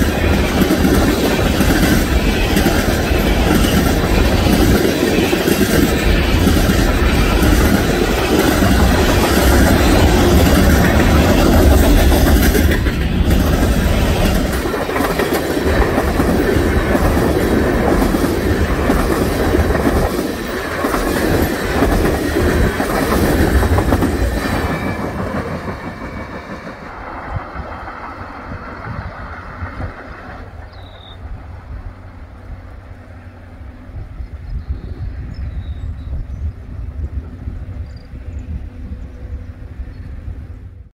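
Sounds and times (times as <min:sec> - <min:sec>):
freight train wheels clattering: 0:00.0 - 0:32.1.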